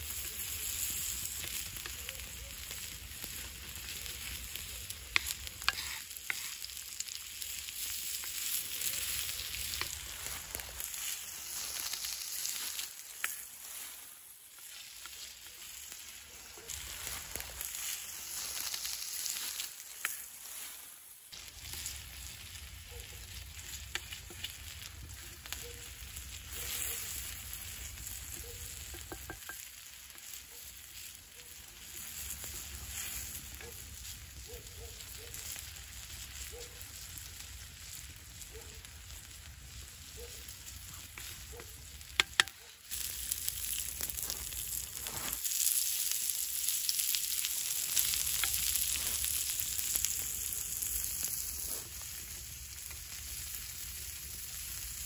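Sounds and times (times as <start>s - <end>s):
potatoes sizzling in oil: 0.0s - 55.0s
wooden spatula scraping stone: 5.1s - 6.7s, 44.0s - 45.5s.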